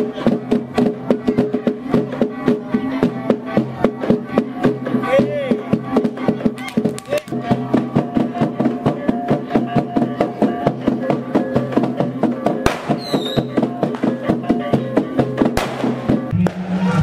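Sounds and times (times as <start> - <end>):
wooden percussion melody: 0.0 - 17.0
sharp loud bangs: 12.7 - 13.2, 15.5 - 16.9.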